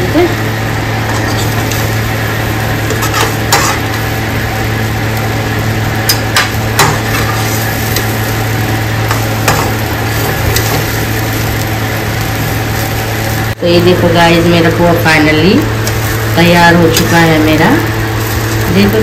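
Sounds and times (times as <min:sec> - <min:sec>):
food sizzling: 0:00.0 - 0:19.0
steady low hum: 0:00.0 - 0:19.0
metal spatula clinking and scraping: 0:01.1 - 0:01.8.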